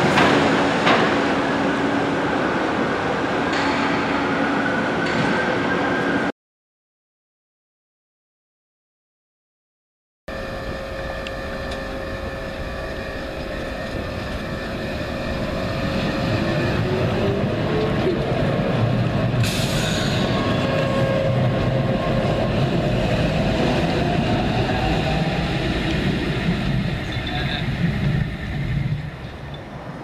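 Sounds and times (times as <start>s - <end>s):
tram motor whine rising: 10.3s - 30.0s.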